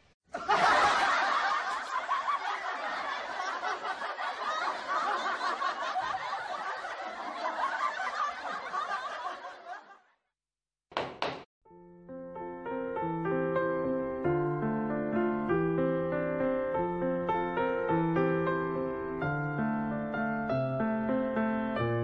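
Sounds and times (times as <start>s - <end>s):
laughter and chuckling: 0.3s - 10.2s.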